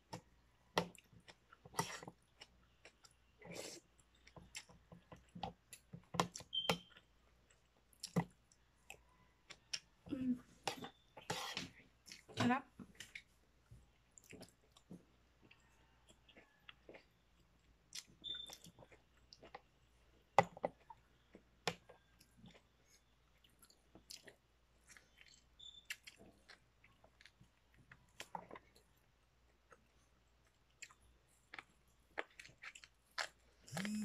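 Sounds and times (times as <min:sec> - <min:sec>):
wet chewing and biting: 0:13.0 - 0:34.0.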